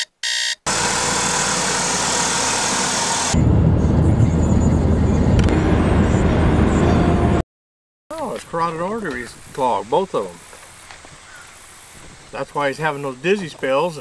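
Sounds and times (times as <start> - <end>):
alarm clock beeps: 0.0 - 0.7
car road and engine noise: 0.6 - 7.4.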